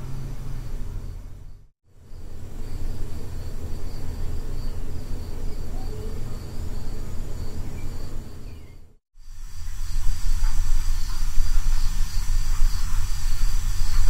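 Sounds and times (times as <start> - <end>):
low rumble and hiss: 0.0 - 14.0
faint high chirping: 4.1 - 9.0.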